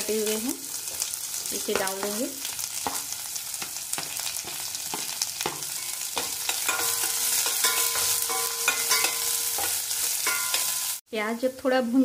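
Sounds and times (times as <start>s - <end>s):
onions sizzling in hot oil: 0.0s - 11.0s
spatula scraping a pan: 2.7s - 11.0s.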